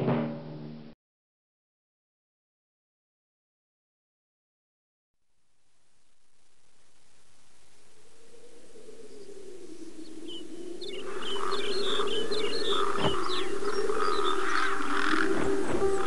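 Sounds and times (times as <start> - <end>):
wavering steady tone: 6.2 - 16.0.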